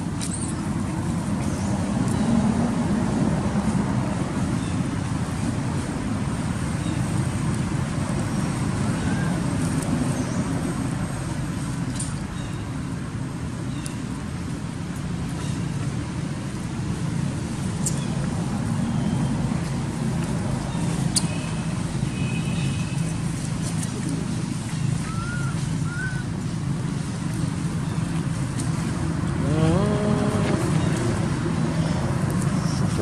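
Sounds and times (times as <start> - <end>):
motorbikes and road traffic: 0.0 - 33.0
voice-like call: 29.4 - 31.2.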